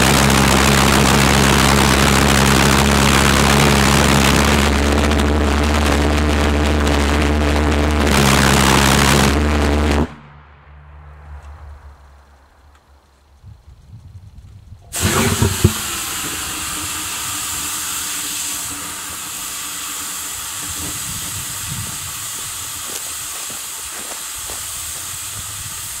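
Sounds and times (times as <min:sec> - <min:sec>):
low thuds: 0:14.8 - 0:22.1
pressurized gas hissing: 0:14.9 - 0:26.0.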